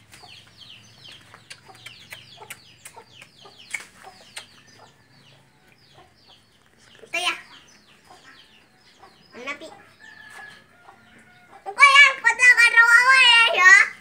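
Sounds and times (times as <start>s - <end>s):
chicks peeping and clucking: 0.0s - 13.2s.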